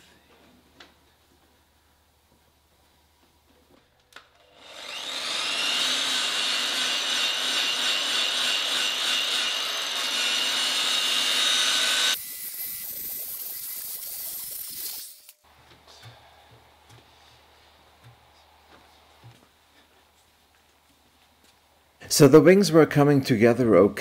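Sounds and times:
electric polisher whining: 4.4 - 14.9.

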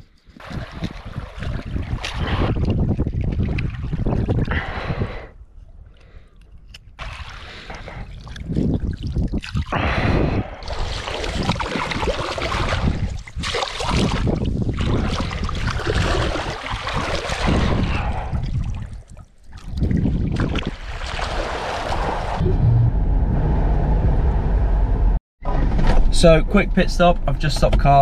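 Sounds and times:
wind rumbling on microphone: 0.0 - 26.2
seawater sloshing and splashing: 0.3 - 4.5, 7.0 - 9.7, 10.6 - 22.4.

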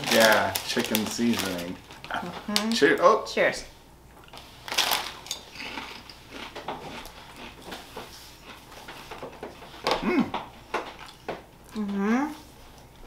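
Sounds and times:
people crunching potato chips: 0.0 - 2.8, 4.3 - 7.6.

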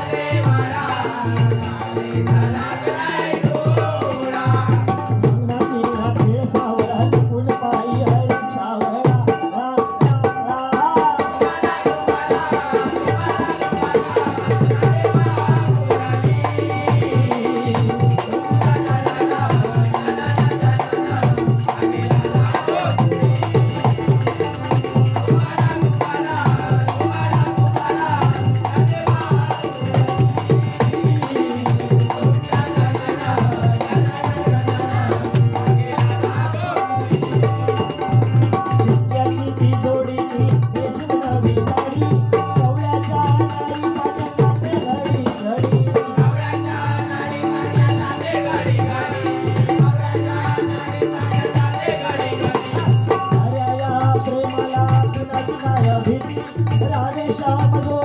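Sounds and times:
dholki drumming fast: 0.0 - 58.0
harmonium: 0.0 - 58.0
man singing: 0.0 - 58.0.

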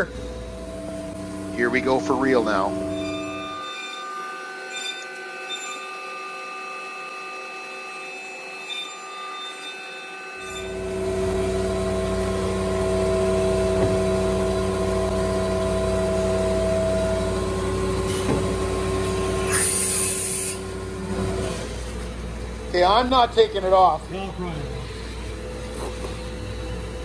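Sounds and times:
machine hum with deep rumble: 0.0 - 3.7, 10.4 - 27.0
cnc router high whine: 0.0 - 27.0.

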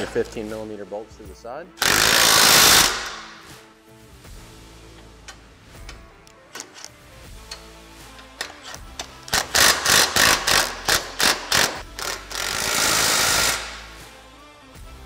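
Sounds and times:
faint background music: 0.0 - 15.0
impact driver hammering: 1.8 - 3.4.

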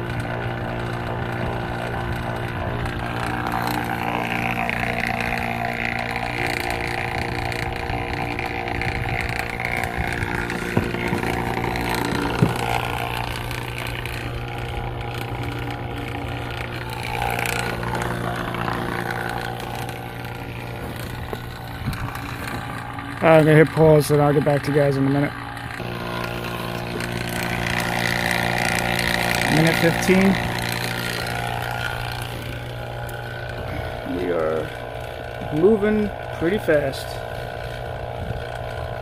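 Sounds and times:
vacuum pump motor humming: 0.0 - 39.0.

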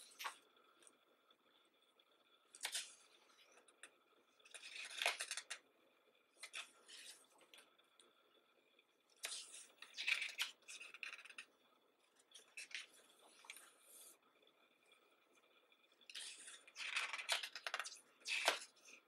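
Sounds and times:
book pages turning: 0.0 - 0.4, 2.5 - 3.6, 4.4 - 5.6, 6.4 - 7.6, 9.1 - 11.5, 12.3 - 14.2, 16.1 - 19.0.

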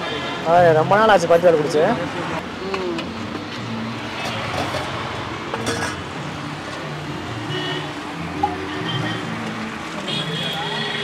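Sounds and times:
street traffic: 0.0 - 11.0.

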